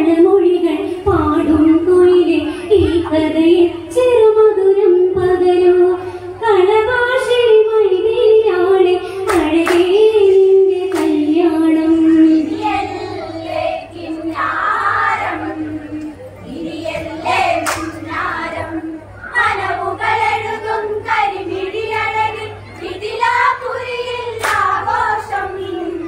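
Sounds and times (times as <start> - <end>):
women singing: 0.0 - 26.0
hand claps: 9.3 - 9.9, 10.9 - 11.2, 17.6 - 18.0, 24.4 - 24.8.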